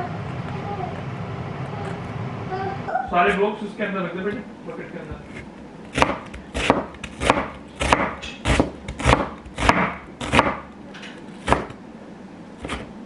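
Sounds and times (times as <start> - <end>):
cleaver chopping onion on wooden board: 5.2 - 10.7, 11.4 - 11.8, 12.6 - 12.9.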